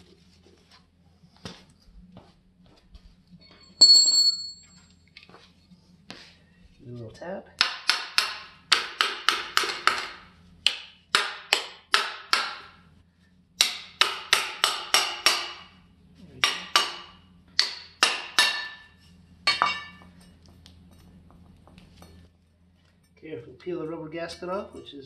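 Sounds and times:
hammer tapping on metal: 13.6 - 15.7, 16.4 - 20.1.

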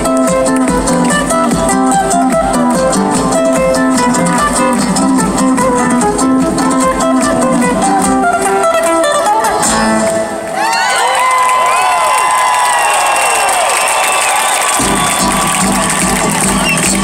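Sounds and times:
acoustic guitars playing: 0.0 - 10.6, 14.8 - 17.0.

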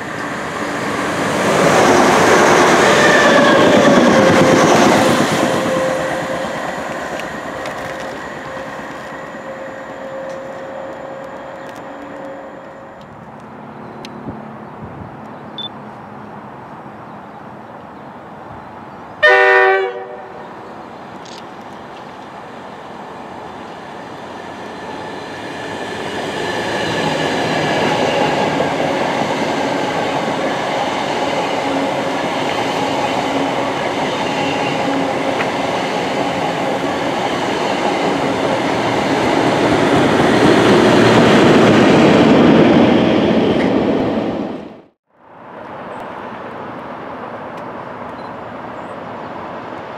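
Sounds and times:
train rumble and rail clatter: 0.0 - 49.9
train horn blast: 5.4 - 6.6, 7.7 - 13.0, 19.2 - 20.5.

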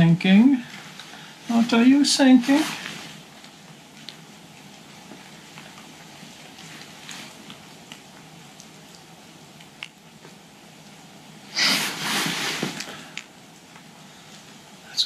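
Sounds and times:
loud breath-like hiss: 11.5 - 13.2.

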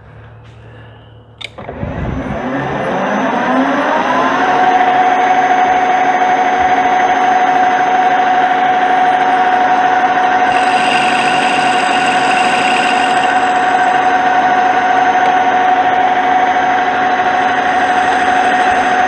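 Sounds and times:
metal lathe whining: 1.4 - 19.0.

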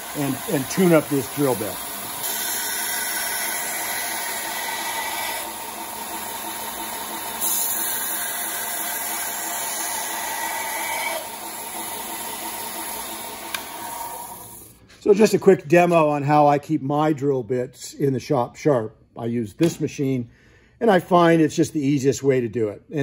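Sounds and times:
drill bit grinding hiss: 0.0 - 14.7
belt sander running: 0.0 - 14.8.

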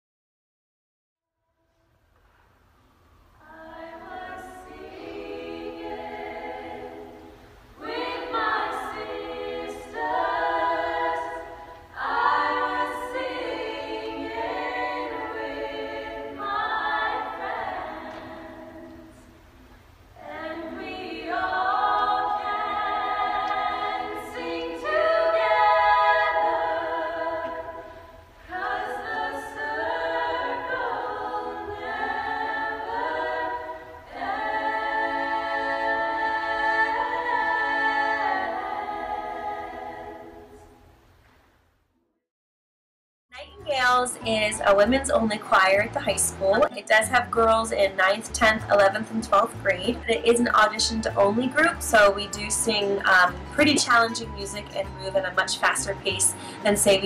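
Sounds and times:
women's choir singing: 3.4 - 19.3, 20.2 - 40.8.

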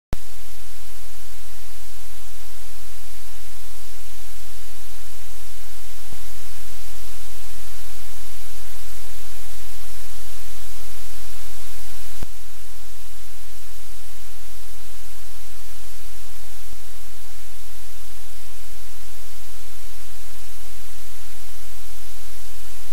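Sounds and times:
loud static hiss: 0.2 - 22.9
low electrical hum: 0.2 - 22.9.

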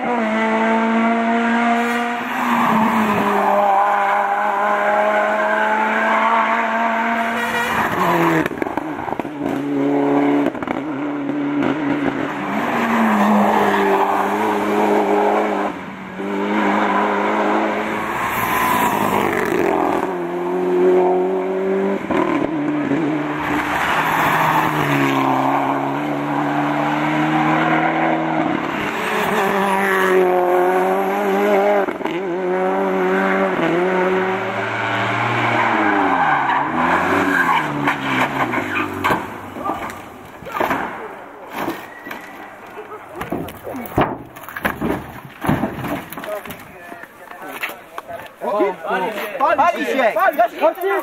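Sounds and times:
race car engines revving high: 0.0 - 40.5
tyre squeal: 35.6 - 40.7, 41.6 - 42.9.

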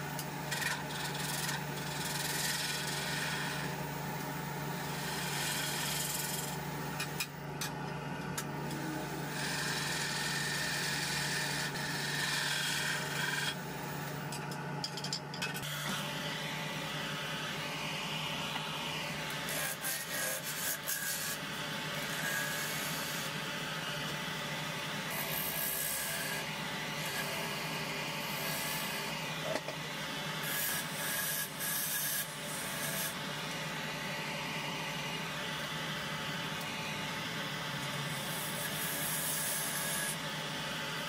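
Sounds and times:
lathe motor hum: 0.0 - 7.3, 7.9 - 14.8, 15.6 - 41.0
wood rasping on lathe: 0.5 - 3.7, 9.2 - 13.7, 19.4 - 21.4.

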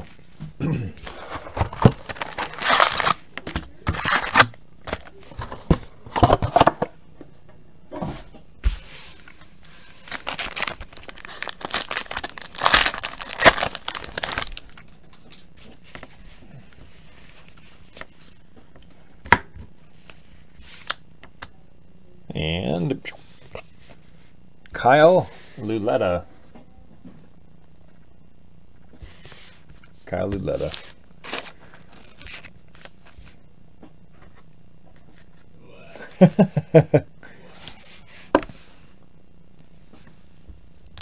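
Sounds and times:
cards being handled: 1.1 - 5.6, 9.2 - 14.8, 29.0 - 33.4
foil wrappers tearing and crinkling: 1.2 - 3.3, 3.9 - 5.1, 10.0 - 14.7.

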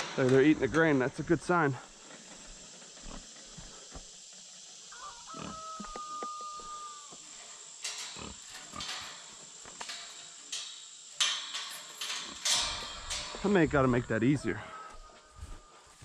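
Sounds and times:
rooster crowing: 4.9 - 7.2, 14.6 - 16.0
metal gate and chain rattling: 7.3 - 14.6.

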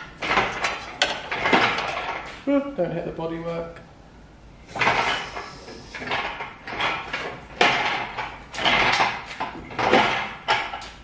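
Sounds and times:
metal scrapes and clunks: 4.7 - 11.0.

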